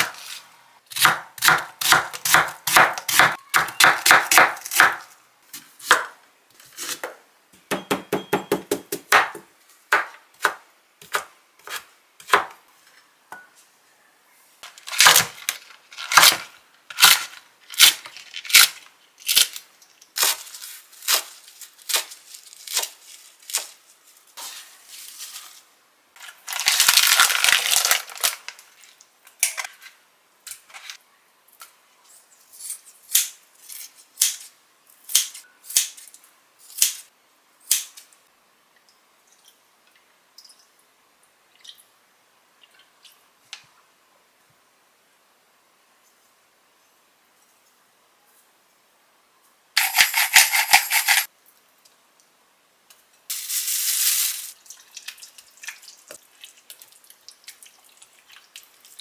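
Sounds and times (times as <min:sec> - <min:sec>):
knife chopping on cutting board: 0:01.0 - 0:05.0
rustle: 0:12.7 - 0:37.1, 0:50.6 - 0:57.5.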